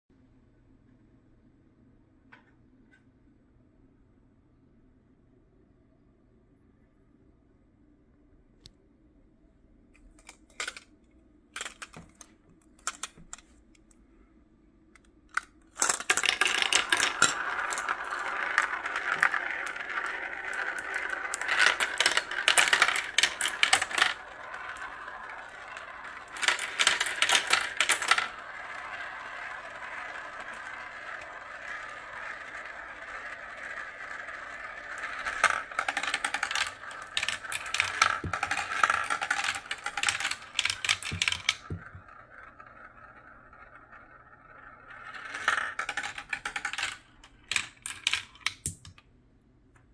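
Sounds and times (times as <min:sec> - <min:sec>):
marbles rolling in plastic marble run: 0:10.2 - 0:10.9, 0:11.6 - 0:13.4, 0:15.3 - 0:49.0.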